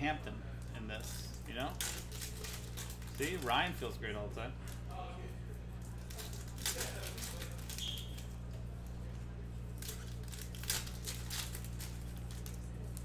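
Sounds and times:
steady low hum: 0.0 - 13.0
cards rustling: 0.9 - 4.8, 5.8 - 8.7, 9.7 - 13.0
foil wrappers crinkling: 0.9 - 4.8, 5.8 - 13.0.

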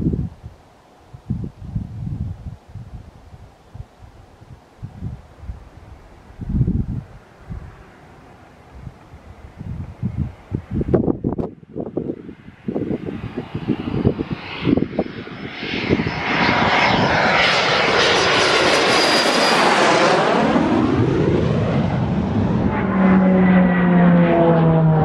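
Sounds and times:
wind thumps on microphone: 1.2 - 7.7, 8.7 - 17.2
jet passing overhead: 4.1 - 25.0.

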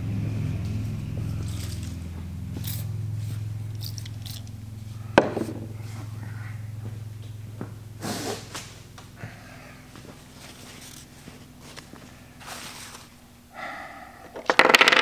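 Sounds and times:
steady low hum: 0.0 - 14.6
can knocking on wooden workbench: 5.2 - 5.7.

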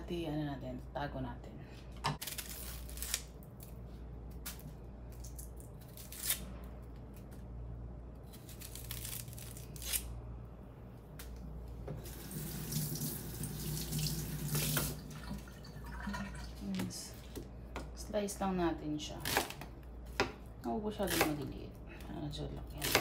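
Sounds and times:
kitchen tap running: 12.0 - 16.7.

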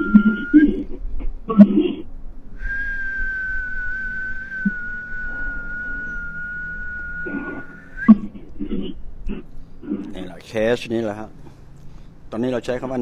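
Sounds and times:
person whistling high note: 0.0 - 0.9, 2.6 - 8.2.

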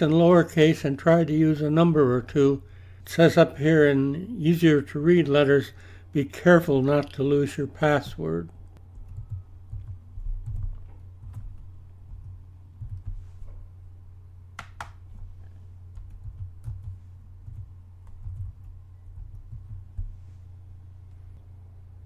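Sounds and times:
low electrical hum: 0.0 - 22.0
keyboard keystrokes: 8.8 - 13.2, 15.9 - 20.1.

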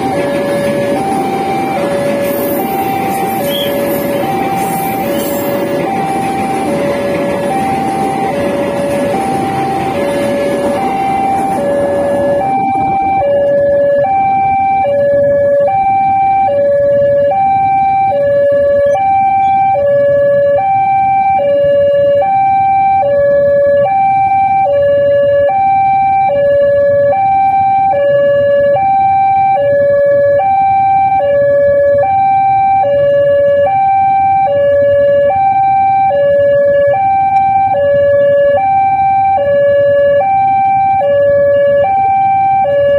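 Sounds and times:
passing train rumble: 0.0 - 25.4
level crossing two-tone alarm: 0.0 - 42.9.

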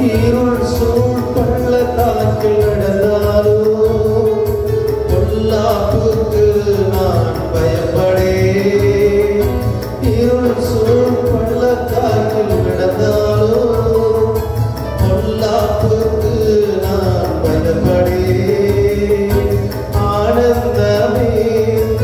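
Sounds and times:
instrumental accompaniment: 0.0 - 22.0
man singing a hymn: 0.0 - 22.0.

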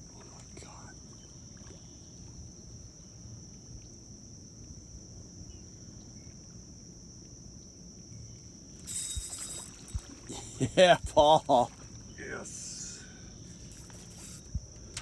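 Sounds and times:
high-pitched insect drone: 0.4 - 15.0.

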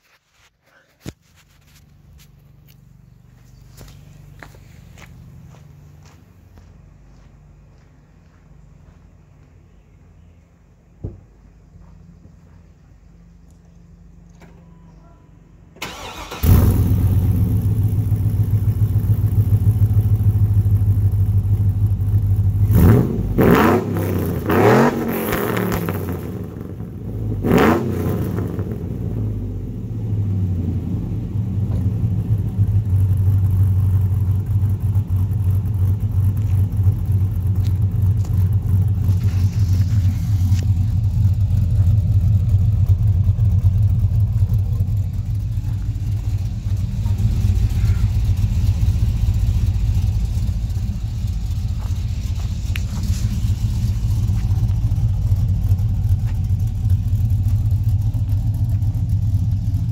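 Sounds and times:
truck engine revving and idling: 15.8 - 59.9.

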